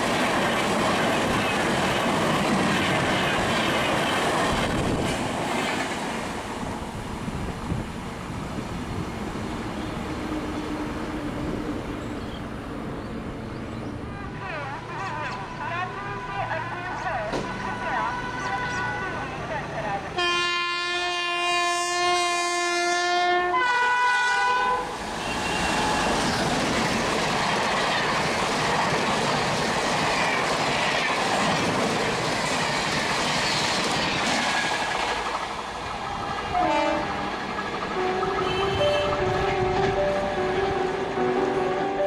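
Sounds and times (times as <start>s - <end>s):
train rushing past: 0.0s - 15.0s, 23.0s - 42.0s
locomotive horn blasts: 15.0s - 19.3s, 20.2s - 26.3s, 36.5s - 37.2s, 38.0s - 41.4s
falling train horn note: 20.2s - 26.4s, 36.4s - 37.2s, 38.0s - 42.0s.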